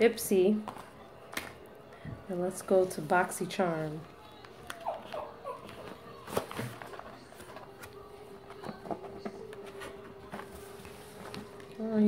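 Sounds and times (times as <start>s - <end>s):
packaging rustling and clicking: 4.4s - 11.8s.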